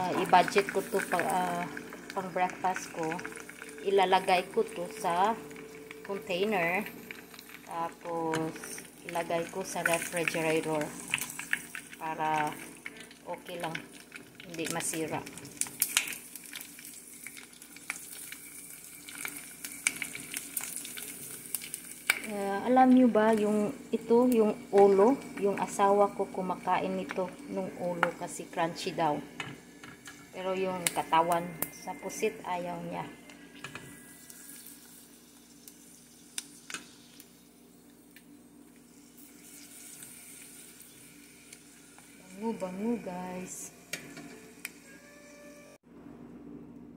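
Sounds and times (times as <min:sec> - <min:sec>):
metal tongs turning food: 0:00.0 - 0:23.6
squid sizzling in oil: 0:00.0 - 0:45.8.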